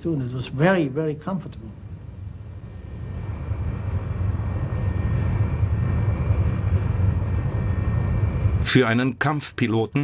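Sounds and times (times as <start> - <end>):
jet engines rumbling in flight: 0.0 - 10.0.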